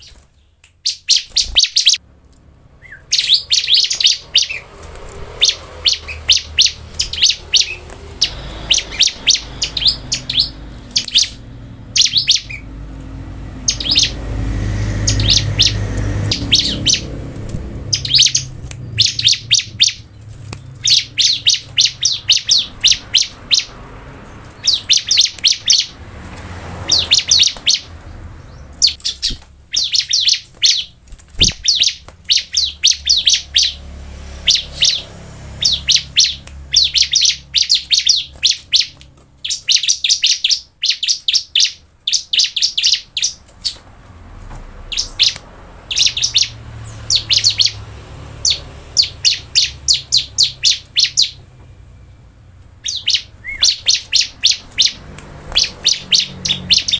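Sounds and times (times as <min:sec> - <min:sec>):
bird singing rapid high notes: 0:00.0 - 0:02.0, 0:02.7 - 0:26.0, 0:26.6 - 0:43.8, 0:44.8 - 0:56.9.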